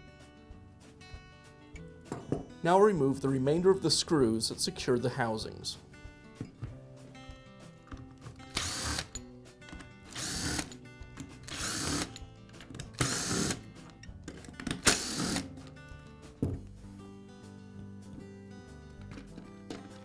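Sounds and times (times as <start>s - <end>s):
background music: 0.0s - 20.0s
power screwdriver whirring: 8.5s - 9.2s, 10.1s - 10.8s, 11.5s - 12.2s, 13.0s - 13.6s, 14.8s - 15.5s.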